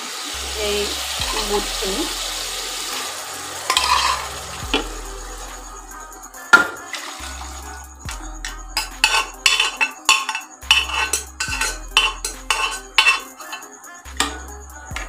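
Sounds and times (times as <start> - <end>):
low hum: 0.4 - 6.4
metal spoon scraping a pot: 3.7 - 4.5, 8.8 - 14.4.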